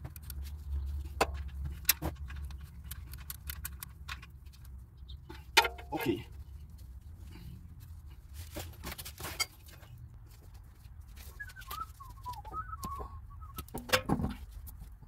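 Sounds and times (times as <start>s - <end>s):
bird chirping: 4.8s - 5.4s.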